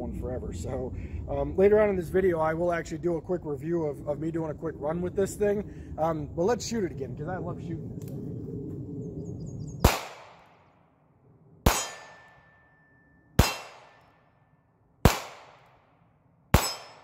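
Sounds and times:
steel target ringing: 0:11.7 - 0:14.3, 0:16.5 - 0:17.0.

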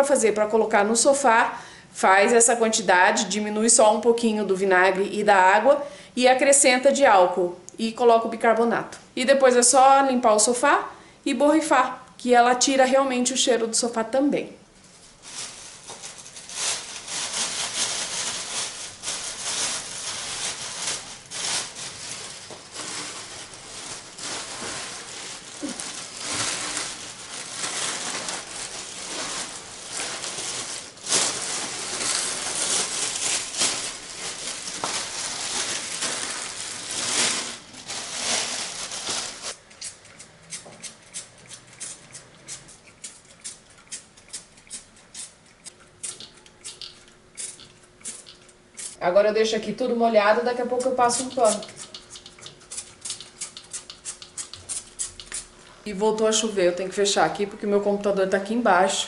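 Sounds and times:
newspaper rustling and crinkling: 0:14.8 - 0:39.6.

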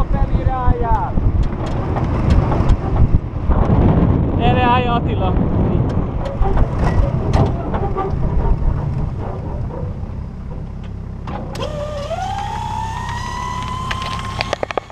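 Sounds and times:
vehicle engine rumble: 0:00.0 - 0:14.9
wind: 0:00.0 - 0:14.9
rattling knocks: 0:05.8 - 0:11.0
mechanical whine: 0:05.8 - 0:14.9.

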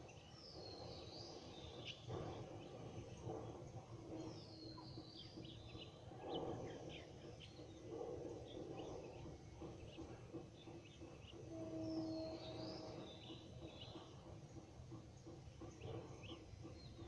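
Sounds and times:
birds chirping: 0:00.0 - 0:17.0
outdoor background murmur: 0:00.0 - 0:17.0.

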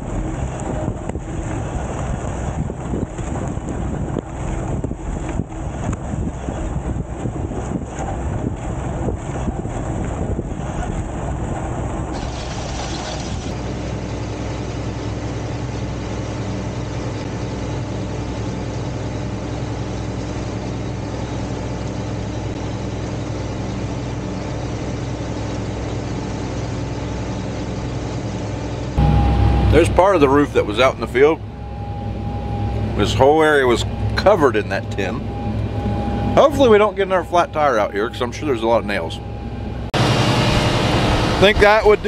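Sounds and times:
wind buffeting microphone: 0:00.0 - 0:13.7
tractor engine drone: 0:00.0 - 0:42.0.

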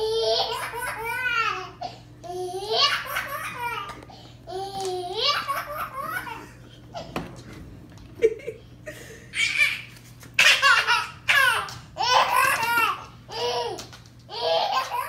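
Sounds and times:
baby laughing: 0:00.0 - 0:07.1, 0:09.3 - 0:15.0.

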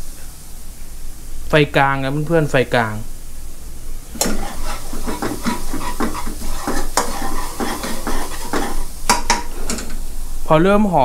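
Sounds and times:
garlic sizzling in oil: 0:04.0 - 0:09.7
metal spatula scraping pan: 0:04.2 - 0:09.8.

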